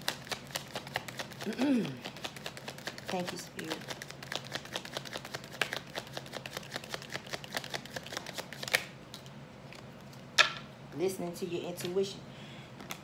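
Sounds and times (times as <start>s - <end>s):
cards being shuffled: 0.0s - 9.3s.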